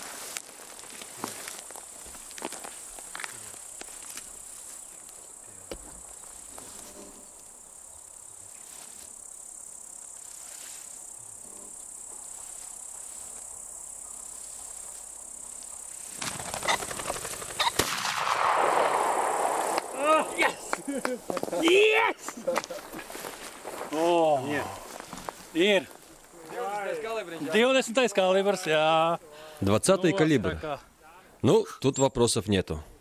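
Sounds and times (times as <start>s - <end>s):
insects chirring: 0.0s - 32.8s
sharp noises: 16.1s - 23.7s.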